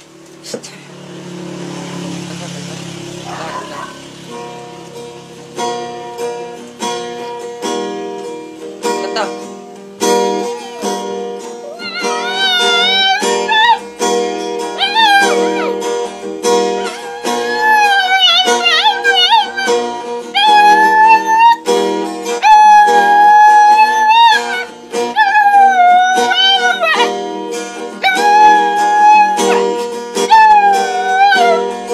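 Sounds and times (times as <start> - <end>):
strummed acoustic guitar: 0.0 - 31.9
puppy howling: 3.2 - 5.3, 10.3 - 21.7, 22.4 - 31.9.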